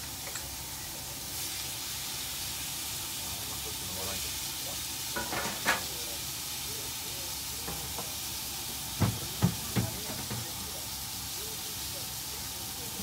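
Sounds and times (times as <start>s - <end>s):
steak sizzling on a griddle: 0.0s - 13.0s.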